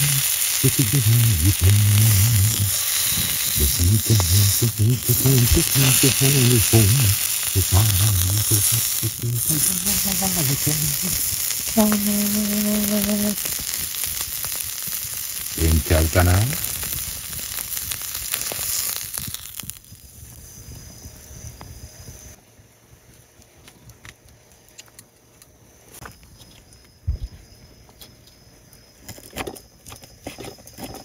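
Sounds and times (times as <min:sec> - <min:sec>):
low voice humming: 0:00.0 - 0:13.5
meat sizzling in a frying pan: 0:00.0 - 0:20.4.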